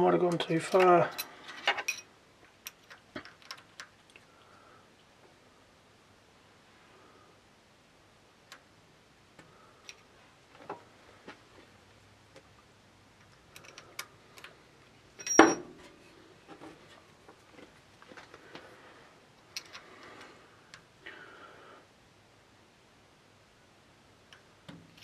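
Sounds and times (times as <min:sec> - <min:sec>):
tools clicking on metal: 0:13.2 - 0:14.5
metallic clink: 0:15.2 - 0:15.7.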